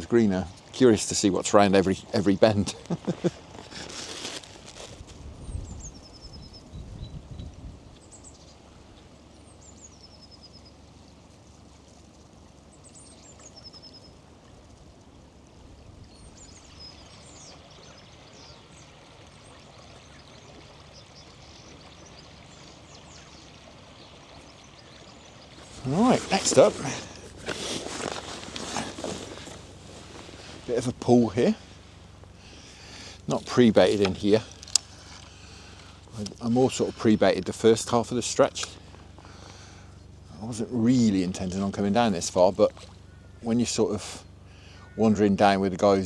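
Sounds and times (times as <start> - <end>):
small river running: 0.0 - 46.0
small birds chirping: 5.4 - 45.7.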